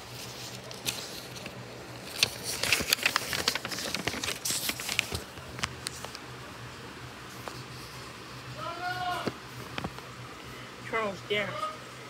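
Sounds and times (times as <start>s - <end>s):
book pages turning: 0.0s - 6.2s, 7.3s - 8.0s, 9.1s - 10.1s.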